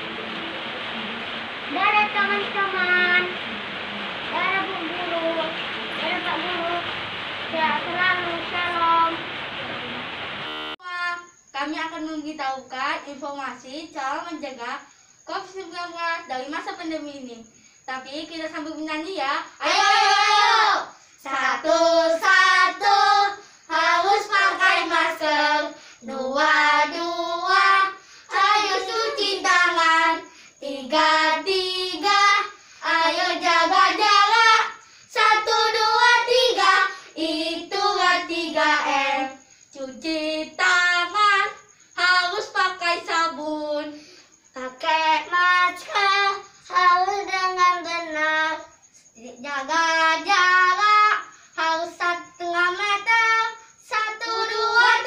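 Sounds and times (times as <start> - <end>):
boys singing together: 19.6 - 44.0, 44.8 - 48.7, 51.8 - 55.0.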